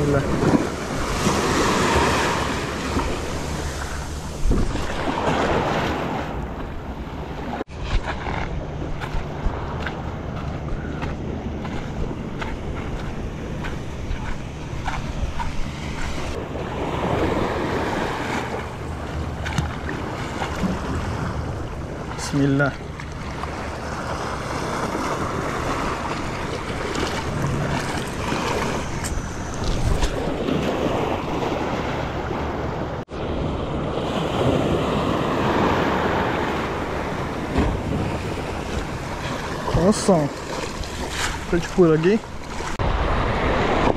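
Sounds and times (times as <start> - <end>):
waves washing against rocks: 0.0 - 6.4, 34.0 - 43.9
sea surf washing in: 0.0 - 8.4, 11.3 - 43.9
wind buffeting microphone: 0.0 - 43.9.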